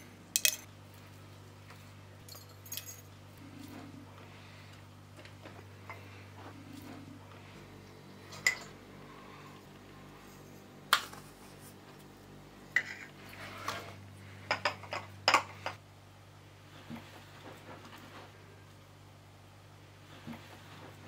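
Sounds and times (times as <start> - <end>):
metal spoon clinking glass jars: 0.4 - 0.7, 2.3 - 3.1.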